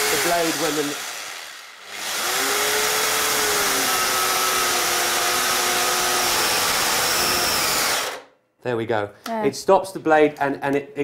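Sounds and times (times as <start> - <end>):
circular saw cutting timber: 0.0 - 8.2.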